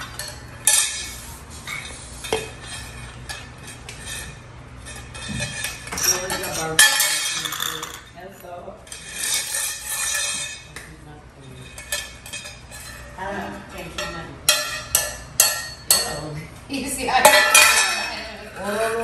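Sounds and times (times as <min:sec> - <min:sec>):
metal kitchenware clattering on concrete: 0:00.0 - 0:19.0.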